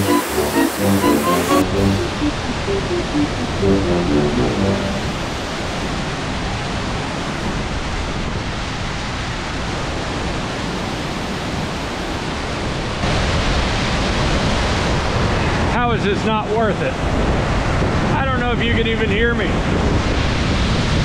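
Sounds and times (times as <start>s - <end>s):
background music: 0.0s - 5.4s
waterfall rushing: 0.0s - 5.8s.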